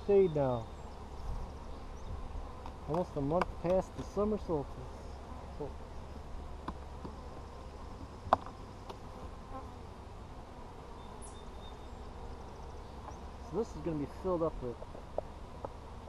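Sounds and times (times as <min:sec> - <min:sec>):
honey bees buzzing: 0:00.0 - 0:16.0
plastic hive lid click: 0:02.6 - 0:04.1.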